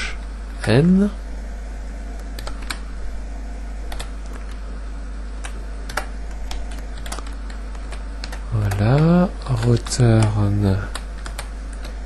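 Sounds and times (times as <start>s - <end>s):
steady low hum: 0.0s - 12.0s
computer keyboard clicks: 3.9s - 4.6s, 5.4s - 12.0s.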